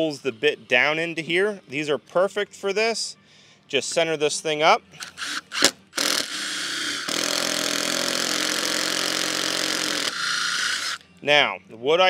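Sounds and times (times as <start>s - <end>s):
drill boring into wood: 5.0s - 11.0s
drill clicks: 5.0s - 11.0s.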